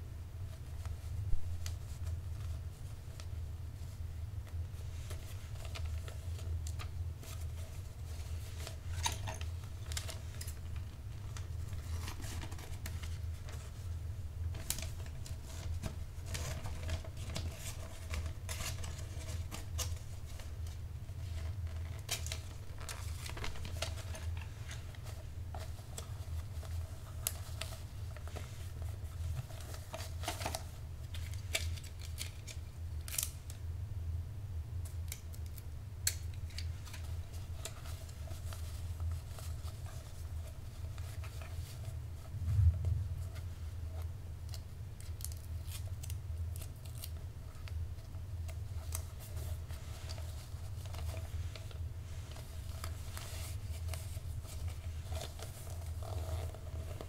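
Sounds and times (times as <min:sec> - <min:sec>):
paper crackling and rustling: 0:00.5 - 0:33.6, 0:34.9 - 0:57.0
steady low hum: 0:32.6 - 0:57.0.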